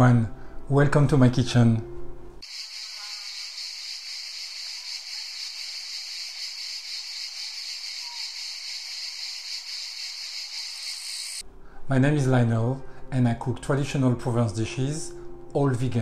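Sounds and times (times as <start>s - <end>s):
steady high-pitched hiss: 2.4s - 11.4s.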